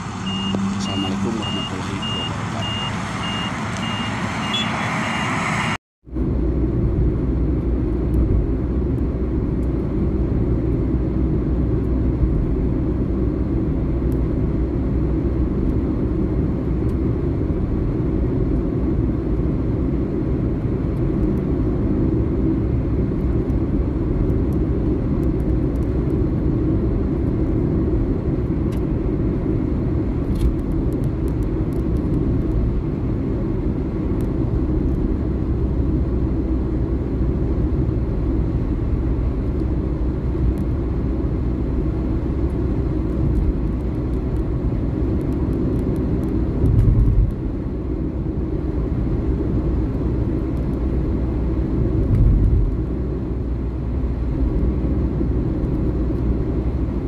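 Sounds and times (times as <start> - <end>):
car tyres and engine rumble: 0.0 - 57.0
high repeating beep: 0.2 - 5.4.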